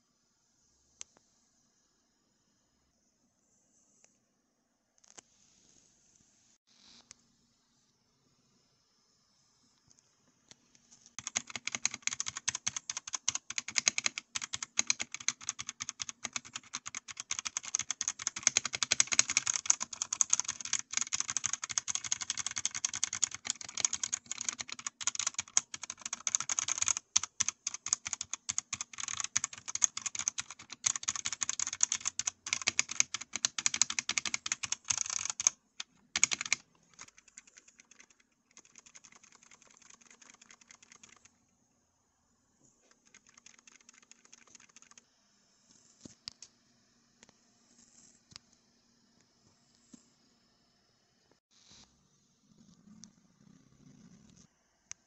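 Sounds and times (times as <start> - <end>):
mechanical keyboard typing: 11.2 - 41.3, 42.9 - 45.0.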